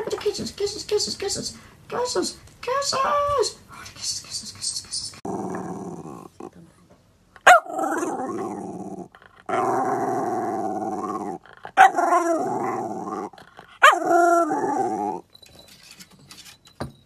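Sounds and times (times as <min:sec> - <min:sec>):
dog howling growly calls: 0:07.6 - 0:15.2.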